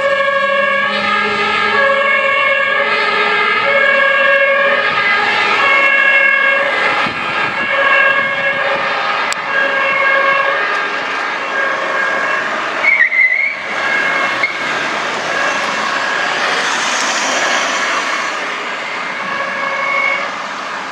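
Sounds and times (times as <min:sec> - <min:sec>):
fire truck two-tone horn: 0:00.0 - 0:20.4
rushing noise: 0:04.2 - 0:20.9.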